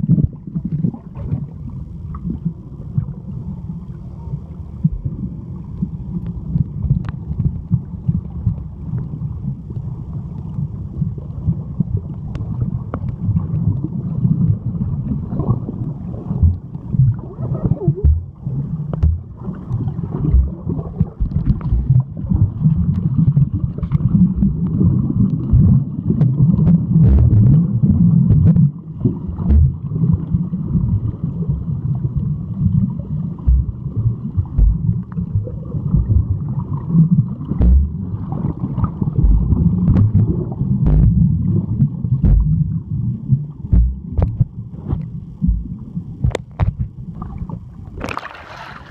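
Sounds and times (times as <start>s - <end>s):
underwater water rumble: 0.0s - 48.9s
small clicks and pops: 6.2s - 7.6s, 43.7s - 46.9s.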